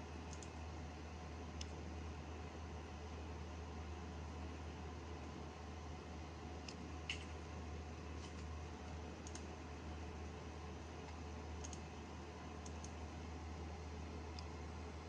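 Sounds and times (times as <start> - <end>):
computer humming: 0.0 - 15.0
mouse and keyboard clicks: 9.2 - 9.5, 11.1 - 11.8.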